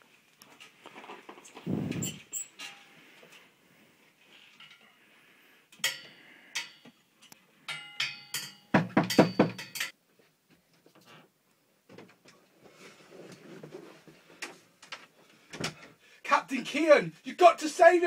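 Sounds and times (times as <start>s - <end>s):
metal bed rails clanging: 4.5s - 5.0s, 5.7s - 10.0s.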